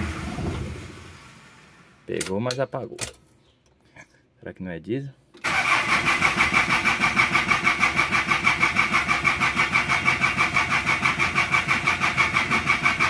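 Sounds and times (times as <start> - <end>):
starter motor cranking engine: 5.4 - 13.0.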